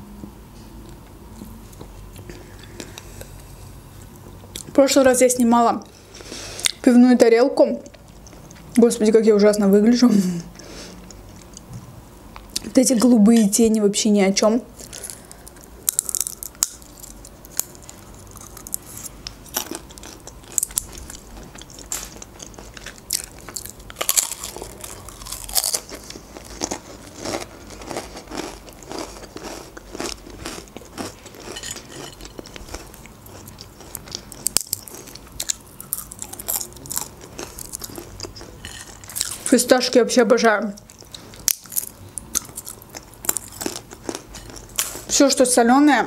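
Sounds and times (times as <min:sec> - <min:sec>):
chewing crunchy snacks: 0:14.8 - 0:39.6, 0:40.8 - 0:45.2.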